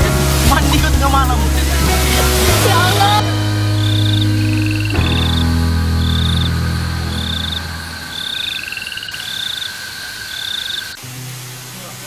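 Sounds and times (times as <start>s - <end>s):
background music of held chords: 0.0s - 8.3s
frogs trilling: 3.8s - 12.0s.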